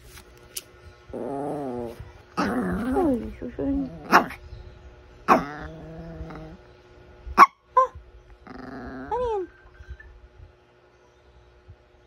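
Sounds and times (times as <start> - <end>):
dog growling: 1.1 - 4.4, 5.3 - 6.7, 8.4 - 9.5
small dog yapping: 4.0 - 4.4, 5.3 - 6.6.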